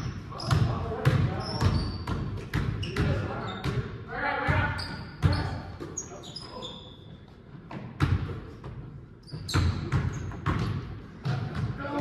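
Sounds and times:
sneaker squeaks: 0.0s - 12.0s
basketball bouncing on hardwood floor: 7.7s - 12.0s.

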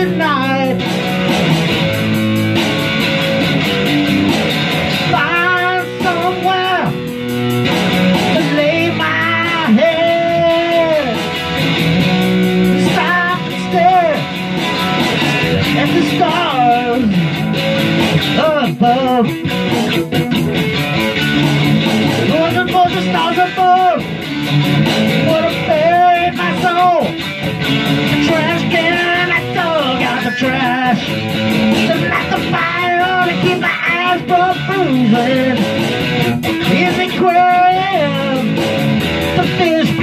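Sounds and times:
electric guitar rock groove: 0.0s - 40.0s
amplified harmonica wailing: 27.7s - 34.8s.

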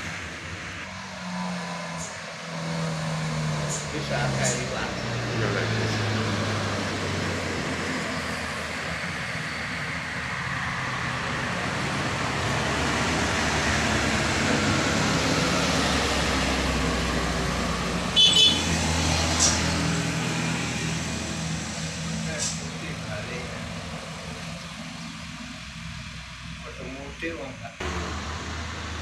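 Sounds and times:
vehicles driving by: 0.0s - 29.0s
vehicle horn toot: 18.1s - 18.8s.

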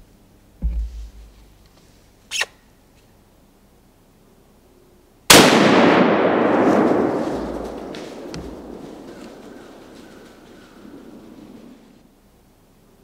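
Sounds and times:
rifle shot echoing: 5.3s - 11.9s.

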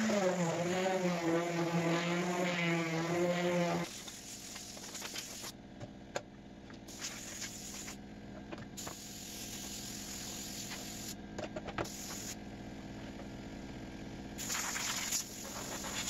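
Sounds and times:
compressed air hissing from nozzle: 3.6s - 5.5s, 6.9s - 8.0s, 8.8s - 11.2s, 11.8s - 12.4s, 14.4s - 16.0s.

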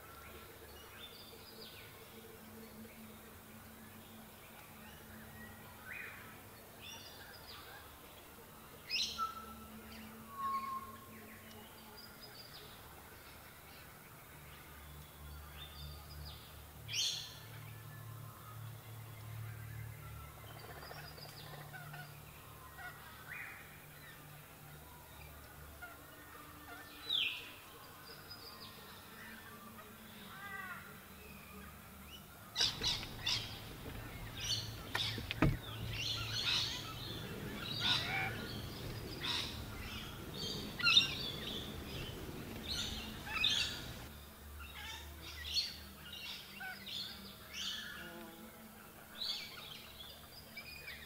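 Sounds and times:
low background noise: 0.0s - 51.0s
birds calling and chirping: 18.8s - 48.2s.

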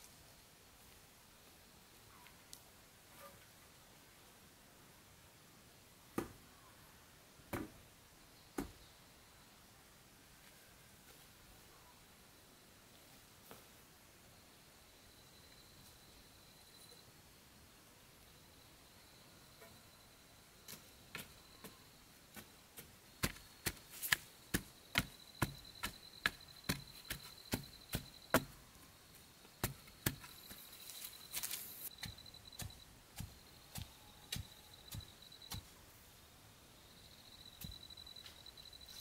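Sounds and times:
wooden stick ramming earth: 22.4s - 28.6s, 29.6s - 30.6s.

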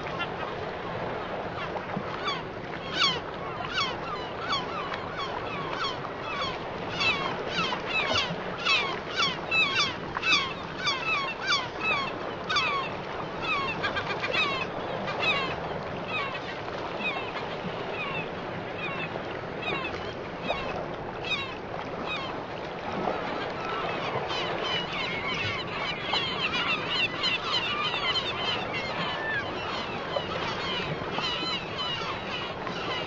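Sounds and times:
flock of birds calling: 2.2s - 16.3s, 23.9s - 33.0s.

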